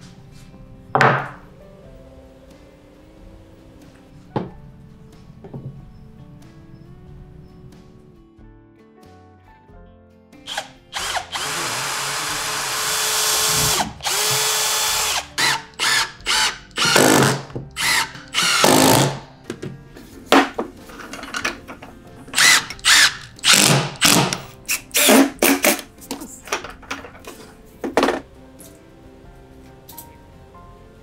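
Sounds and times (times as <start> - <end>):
cordless drill boring into wood: 10.5 - 19.2, 22.4 - 25.2.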